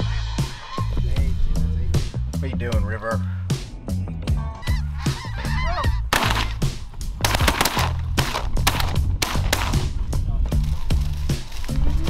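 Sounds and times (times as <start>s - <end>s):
music with steady bass: 0.0s - 12.0s
snow geese honking: 4.4s - 8.0s.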